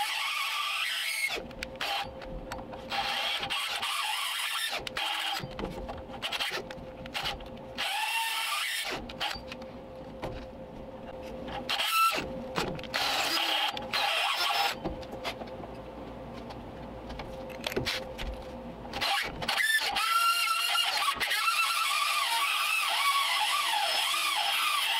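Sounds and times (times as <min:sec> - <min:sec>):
drill grinding metal: 0:02.9 - 0:05.5, 0:12.9 - 0:14.8, 0:19.0 - 0:24.9
drill motor hum: 0:02.9 - 0:05.6, 0:06.2 - 0:09.6, 0:11.5 - 0:14.9.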